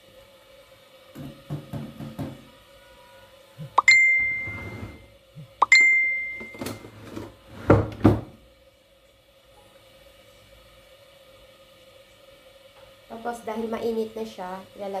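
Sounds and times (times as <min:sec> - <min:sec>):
bright ringing dings: 0:03.8 - 0:04.7, 0:05.6 - 0:06.8.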